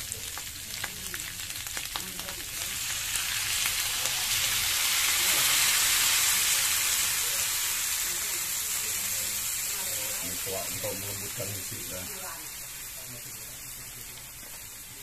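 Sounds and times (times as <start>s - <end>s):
crackles: 0.0s - 9.9s
liquid sizzling in hot wok: 0.0s - 15.0s.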